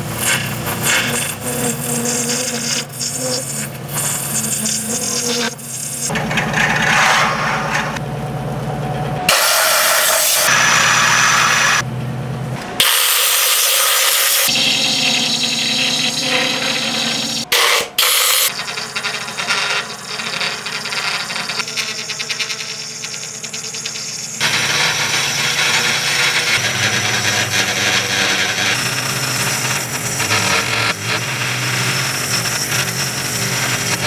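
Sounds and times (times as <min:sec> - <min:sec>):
wood lathe spinning: 0:00.0 - 0:08.0, 0:14.5 - 0:34.0
turning tool shaving cork: 0:00.1 - 0:06.1, 0:18.4 - 0:34.0
drill-driven sanding pad: 0:09.3 - 0:11.8, 0:12.8 - 0:34.0.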